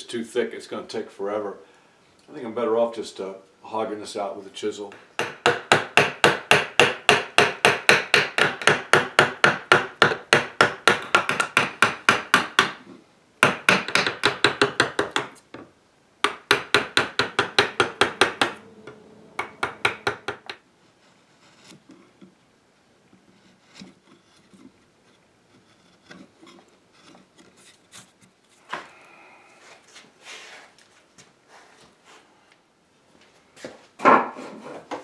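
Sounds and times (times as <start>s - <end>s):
chisel paring wood: 4.9s - 15.4s, 16.2s - 20.6s, 23.2s - 24.7s, 25.5s - 27.5s
mallet striking chisel: 5.2s - 12.8s, 13.4s - 15.3s, 16.2s - 20.6s.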